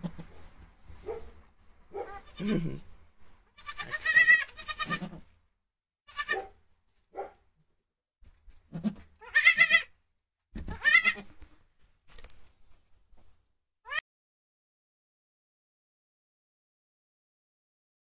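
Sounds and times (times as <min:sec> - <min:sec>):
goat kid bleating: 0:00.0 - 0:00.4, 0:02.0 - 0:05.3, 0:06.1 - 0:06.6, 0:08.7 - 0:10.0, 0:10.6 - 0:11.5, 0:13.8 - 0:14.0.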